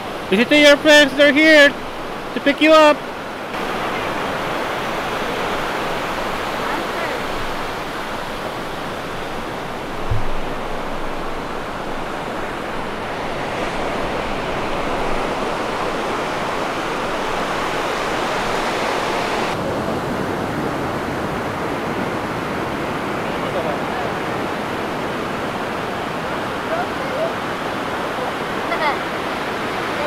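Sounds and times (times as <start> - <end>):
surf washing onto beach: 0.0 - 30.0
low thump: 10.0 - 11.2.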